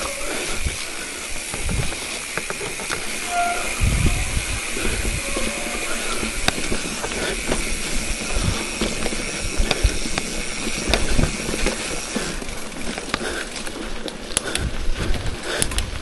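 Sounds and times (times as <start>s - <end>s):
rushing air: 0.0s - 12.4s
bicycle tyres hissing on loose ground: 0.0s - 16.0s
bike clicks and rattles: 0.0s - 16.0s.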